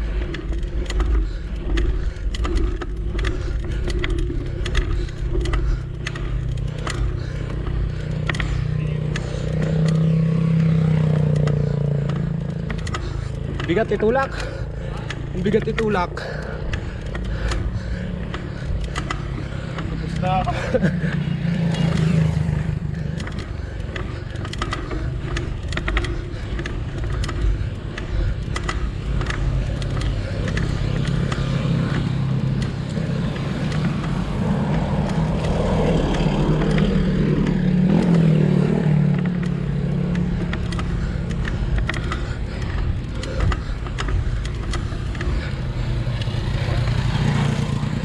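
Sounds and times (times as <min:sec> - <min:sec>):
light rattles and clicks: 0:00.0 - 0:48.0
vehicle engine running under load: 0:00.0 - 0:48.0.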